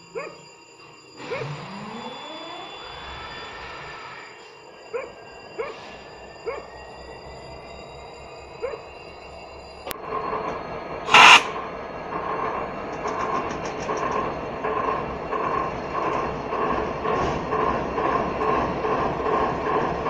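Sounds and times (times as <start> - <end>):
freight train rolling past: 0.0 - 20.0
short loud hiss: 11.1 - 11.6.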